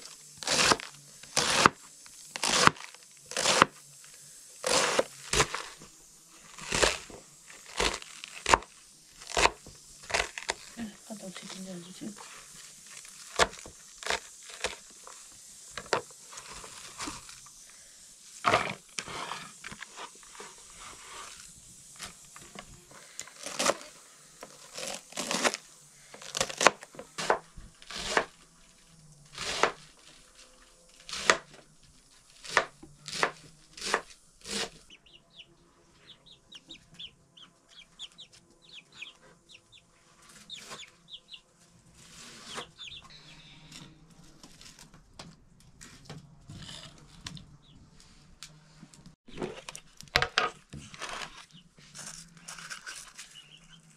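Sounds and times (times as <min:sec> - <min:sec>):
knife chopping cabbage on board: 0:00.4 - 0:01.8, 0:02.4 - 0:03.7, 0:07.7 - 0:08.7, 0:09.3 - 0:10.6, 0:26.3 - 0:28.3, 0:29.4 - 0:29.8, 0:31.1 - 0:31.5, 0:32.4 - 0:34.8
chicks calling: 0:34.8 - 0:41.5, 0:42.2 - 0:43.8, 0:52.8 - 0:53.9.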